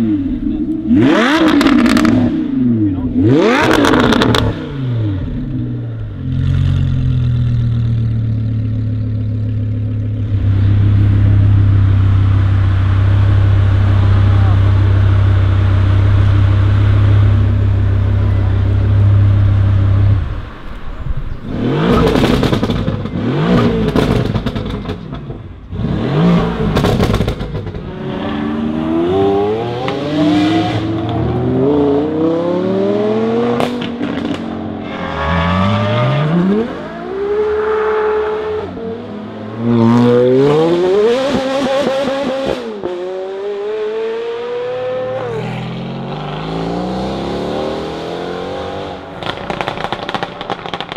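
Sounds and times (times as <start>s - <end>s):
low engine drone: 0.0s - 23.9s
car engines accelerating hard: 0.0s - 50.9s
exhaust pops: 49.2s - 50.9s.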